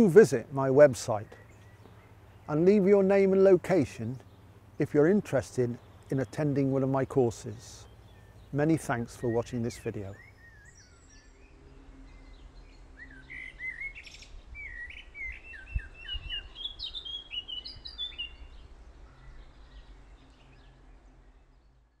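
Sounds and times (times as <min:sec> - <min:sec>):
songbird chirping and whistling: 0:07.8 - 0:18.7.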